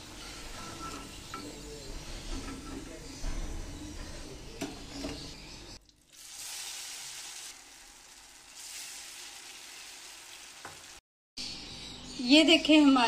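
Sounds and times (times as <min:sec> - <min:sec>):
hot oil sizzling: 0:05.9 - 0:11.0.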